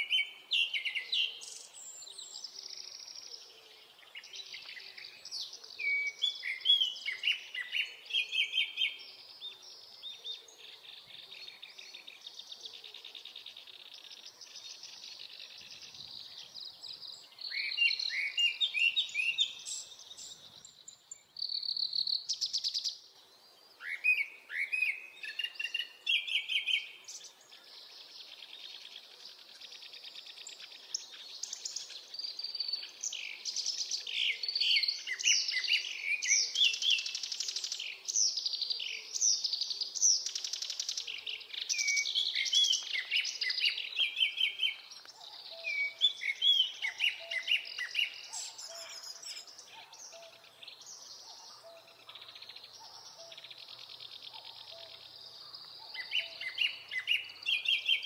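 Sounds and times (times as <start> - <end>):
reed warbler chattering song: 23.7 - 58.0.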